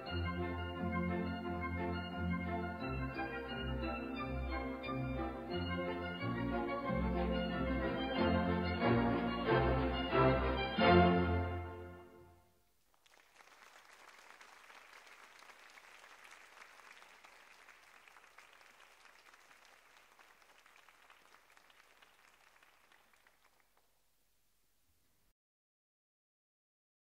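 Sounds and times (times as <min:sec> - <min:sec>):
audience applause: 0:12.9 - 0:23.9.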